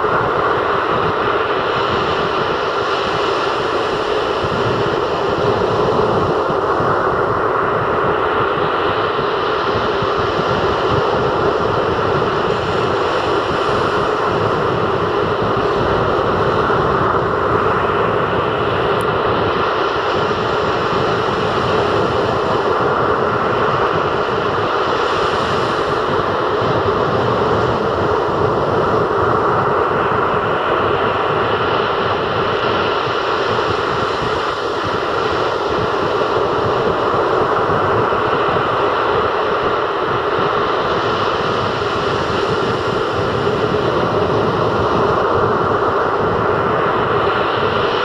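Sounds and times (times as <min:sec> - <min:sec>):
sea surf breaking on a beach: 0:00.0 - 0:48.0.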